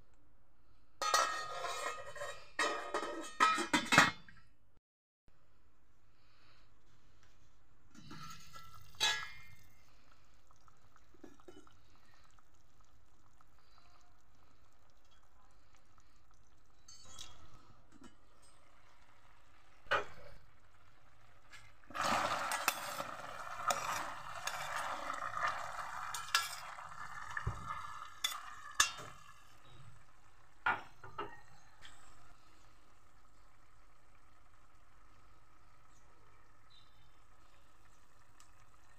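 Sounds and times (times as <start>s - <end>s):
stirring with scrapes: 1.0s - 3.3s, 21.4s - 29.8s
metal clinking on cooking pot: 1.0s - 4.3s, 8.0s - 9.7s, 16.7s - 18.8s, 22.5s - 29.7s
food simmering: 6.4s - 38.9s.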